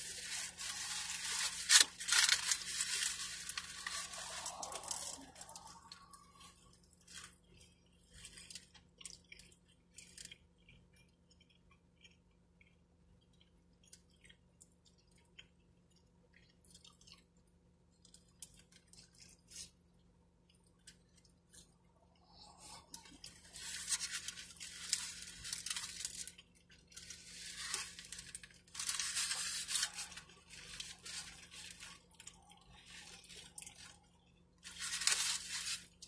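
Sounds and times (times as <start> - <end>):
aluminium foil crinkling: 0.0 - 10.8, 18.0 - 19.8, 20.8 - 36.0
chewing and lip-smacking: 4.6 - 23.5.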